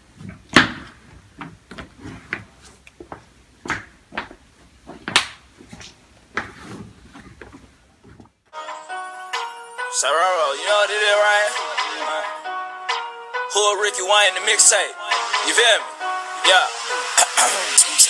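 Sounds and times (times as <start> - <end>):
shuffles and rustles: 1.0 - 3.3, 4.1 - 8.4.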